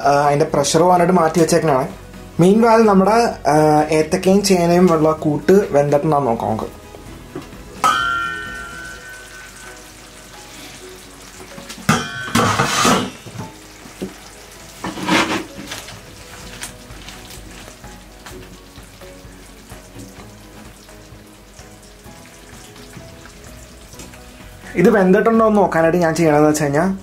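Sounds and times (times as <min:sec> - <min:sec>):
pot sizzling: 0:00.0 - 0:27.0
metal pot lid clanking: 0:07.8 - 0:09.8, 0:11.9 - 0:13.5, 0:14.8 - 0:15.6
clatter and scraping: 0:14.8 - 0:15.8.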